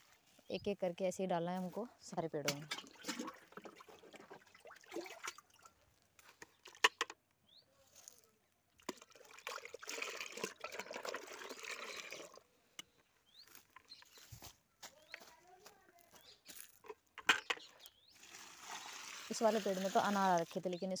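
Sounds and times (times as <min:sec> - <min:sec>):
slurry splashing into a bucket: 0:02.5 - 0:05.7, 0:08.8 - 0:12.4, 0:18.2 - 0:20.6.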